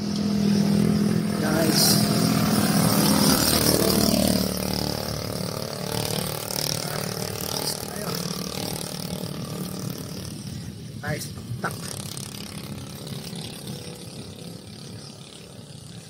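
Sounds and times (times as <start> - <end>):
vehicle engine passing by: 0.0 - 10.7
steady rushing noise: 0.0 - 16.0.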